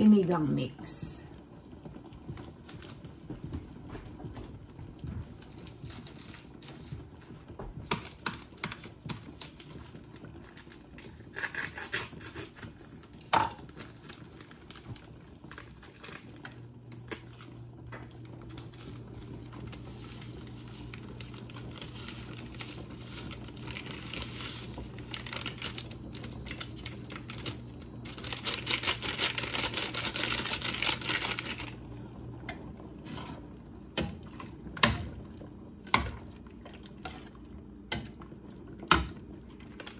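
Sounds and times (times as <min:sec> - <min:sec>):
low steady hum: 0:00.0 - 0:39.9
plastic sachets crinkling: 0:05.4 - 0:07.3, 0:12.1 - 0:31.8.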